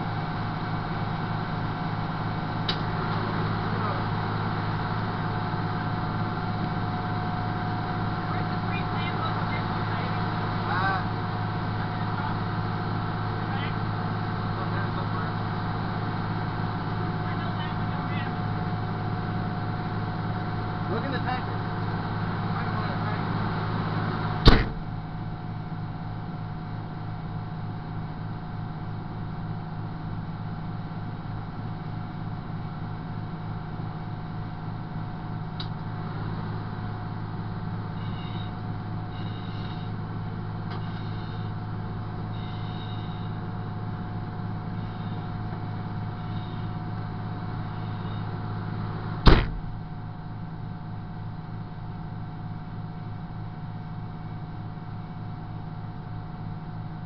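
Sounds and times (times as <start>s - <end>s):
fire engine idling: 0.0s - 57.0s
sharp knocks: 24.5s - 24.8s, 49.2s - 49.7s.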